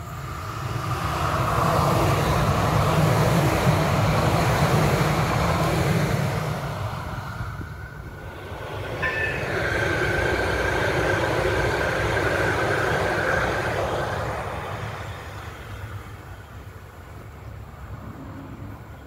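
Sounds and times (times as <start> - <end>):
light-rail train passing: 0.0 - 19.0
steady high whine: 0.0 - 19.0
brief high tone: 9.0 - 9.7.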